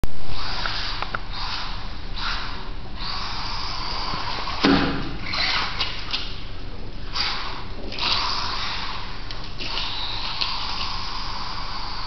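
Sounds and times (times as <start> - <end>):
toy car motor whirring: 0.3 - 4.6, 7.1 - 9.0.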